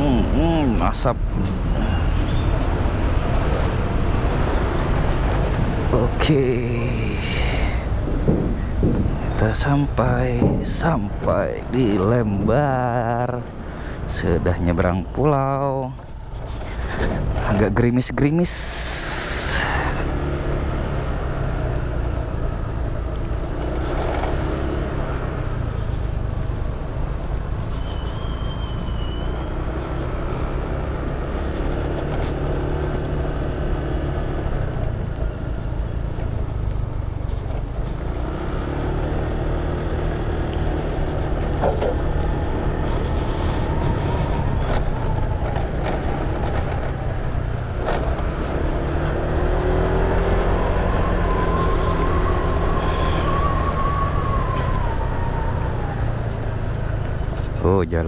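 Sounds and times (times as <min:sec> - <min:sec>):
wind noise: 0:00.0 - 0:12.6, 0:40.9 - 0:48.4
road noise: 0:00.0 - 0:58.0.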